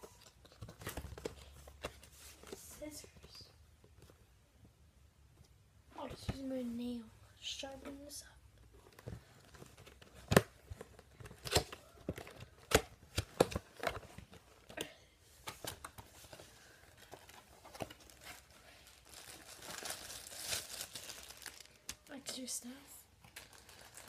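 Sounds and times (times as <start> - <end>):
bubble wrap crinkling: 16.2 - 22.4, 23.2 - 24.0.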